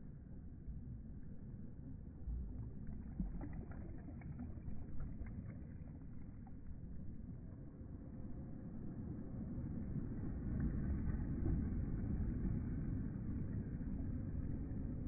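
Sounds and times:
sea ripples lapping: 2.1 - 8.4.

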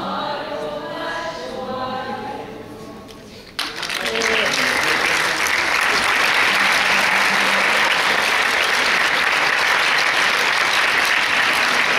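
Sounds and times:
large audience applauding: 3.6 - 11.9.

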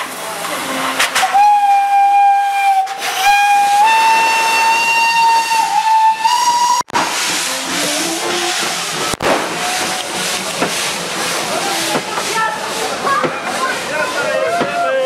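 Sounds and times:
steam hissing: 0.0 - 15.0
steam locomotive whistle: 0.6 - 10.1.

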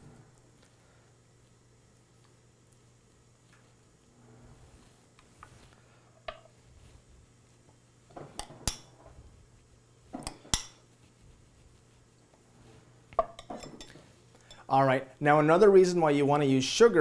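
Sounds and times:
spoon scraping and clinking bowl: 13.2 - 14.7.

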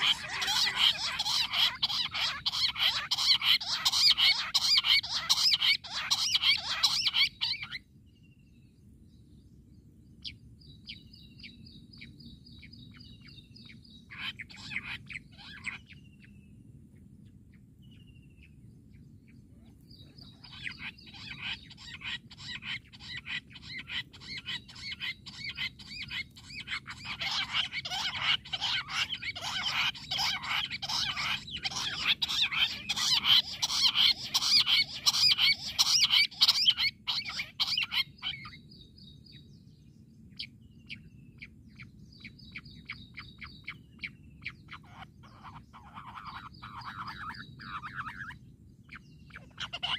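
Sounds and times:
quail calling rapid notes: 0.0 - 7.8, 14.1 - 15.9, 20.3 - 38.6, 44.4 - 48.4, 49.3 - 49.9.

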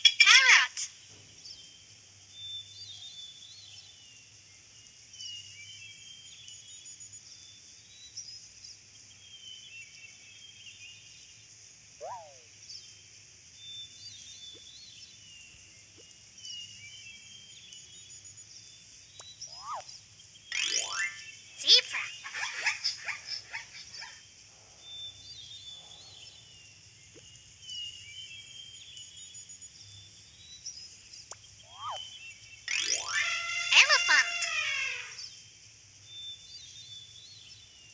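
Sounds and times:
small birds chirping: 0.0 - 37.9.

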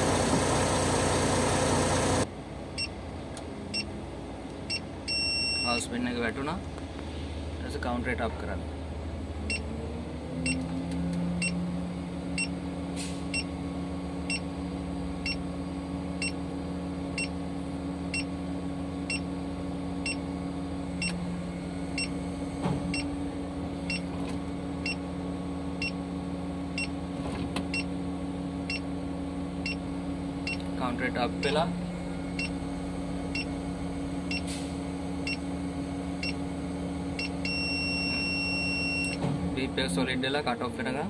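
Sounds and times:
crane engine and hydraulic pump droning: 0.0 - 5.7, 6.6 - 40.9
short electronic warning beep: 5.1 - 5.8, 37.2 - 39.2.

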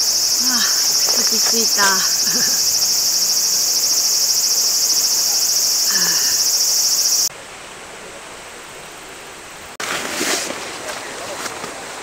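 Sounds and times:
insects chorus: 0.0 - 7.3.

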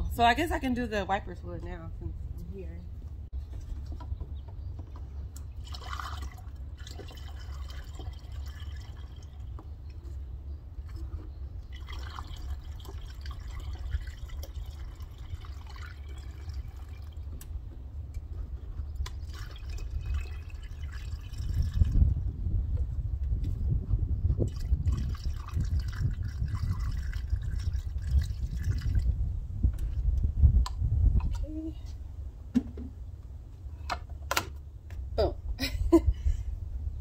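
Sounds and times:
low steady rumble: 0.0 - 37.0
fluid pouring through a funnel: 5.5 - 9.6, 10.8 - 17.4, 19.0 - 22.2, 24.3 - 29.2.

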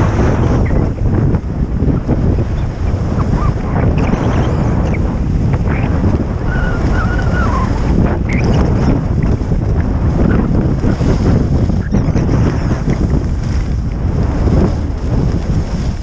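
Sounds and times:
wind buffeting on microphone: 0.0 - 16.0
skis sliding on packed snow: 9.3 - 16.0.

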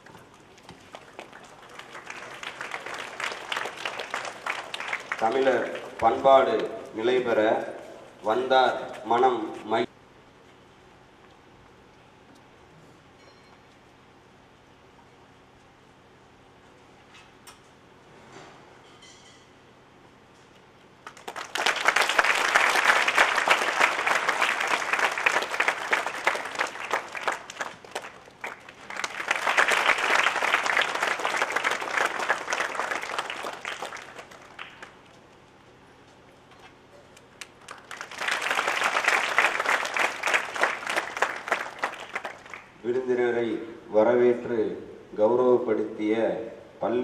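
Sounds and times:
audience applauding: 0.7 - 6.9, 21.0 - 35.0, 37.4 - 42.8.

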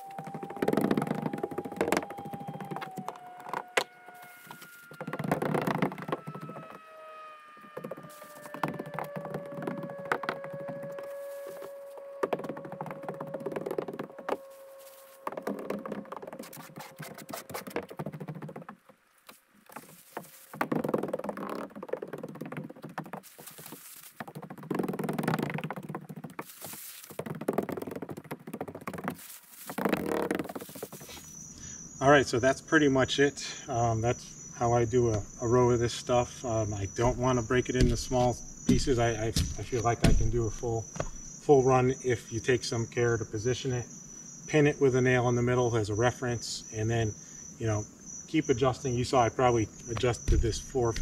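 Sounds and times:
plastic film crinkling: 19.7 - 31.2
faint steady hum: 31.0 - 51.0
footsteps on wooden roof deck: 35.0 - 35.3, 36.5 - 41.4, 49.9 - 51.0
sharp knock: 37.8 - 41.2.

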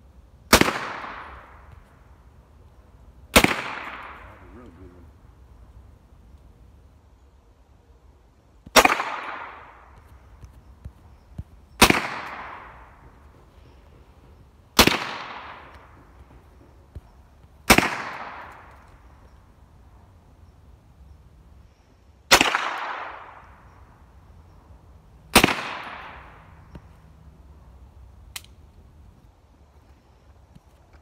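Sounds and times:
rifle shots with echo: 0.5 - 1.7, 3.3 - 4.9, 8.7 - 10.0, 11.8 - 13.2, 14.8 - 16.4, 17.6 - 19.1, 22.3 - 23.7, 25.3 - 26.5.

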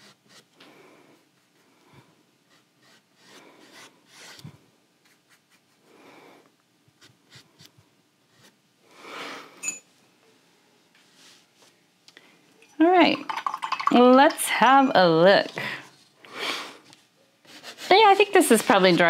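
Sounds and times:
paintbrush brushing on canvas: 17.5 - 19.0.

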